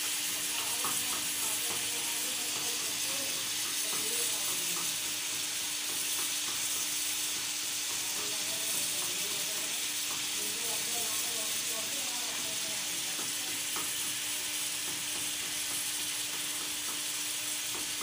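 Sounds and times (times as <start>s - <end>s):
chicken sizzling in hot oil: 0.0s - 18.0s.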